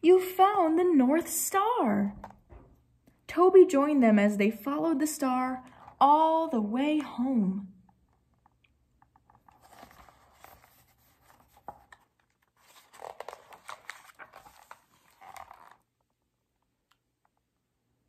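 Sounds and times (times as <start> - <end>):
paper pages rustling: 9.1 - 16.0.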